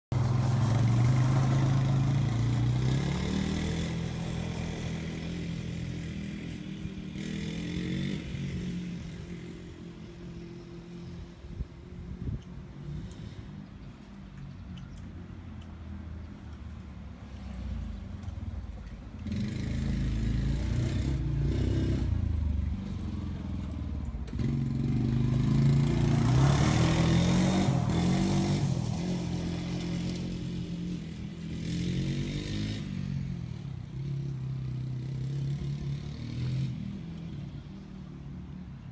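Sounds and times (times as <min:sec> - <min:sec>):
quad bike engine running: 0:00.1 - 0:11.0, 0:19.1 - 0:37.8.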